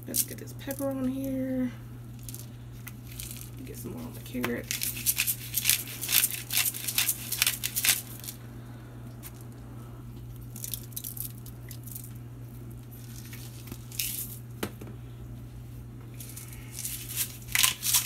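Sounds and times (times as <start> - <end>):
pepper mill grinding: 2.2 - 8.4, 13.0 - 14.4, 16.2 - 18.0.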